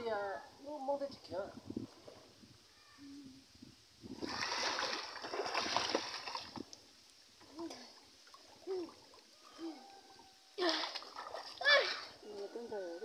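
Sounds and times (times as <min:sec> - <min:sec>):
children splashing in water: 0:04.2 - 0:06.7, 0:07.4 - 0:12.2.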